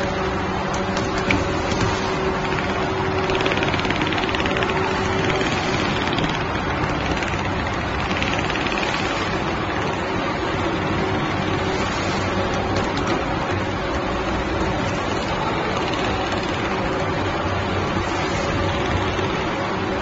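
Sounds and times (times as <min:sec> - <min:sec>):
machine motors running: 0:00.0 - 0:20.0
sewing machine needle rattle: 0:01.0 - 0:10.1, 0:15.0 - 0:16.8.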